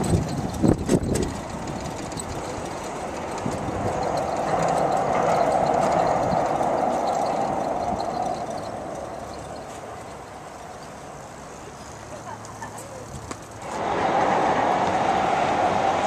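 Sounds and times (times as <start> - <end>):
rail vehicle passing: 0.0 - 16.0.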